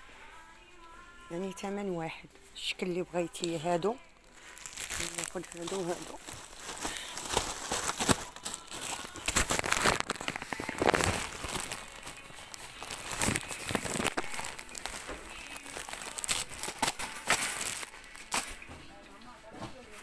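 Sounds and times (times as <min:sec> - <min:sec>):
plastic wrapping crinkling: 0:02.5 - 0:18.8.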